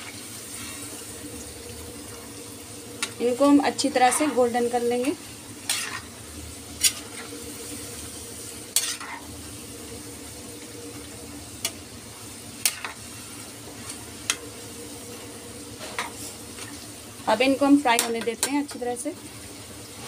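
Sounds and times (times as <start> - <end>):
oil sizzling: 0.0 - 20.0
metal utensils scraping pan: 3.8 - 4.7, 5.7 - 6.1, 6.8 - 7.3, 8.8 - 9.3.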